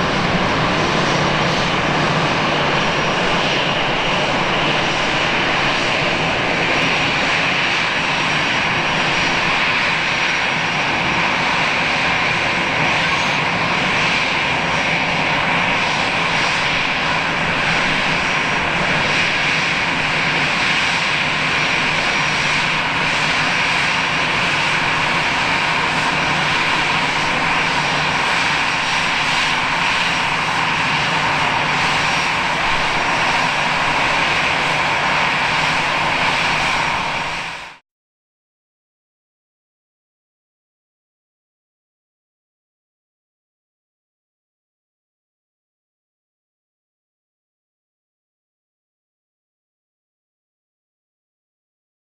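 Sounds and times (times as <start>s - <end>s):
jet engines idling: 0.0s - 37.8s.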